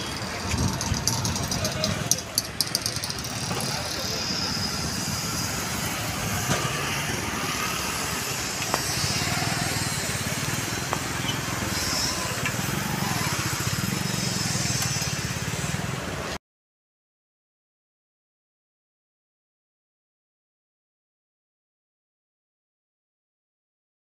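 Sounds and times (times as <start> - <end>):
city road traffic passing: 0.0 - 16.4.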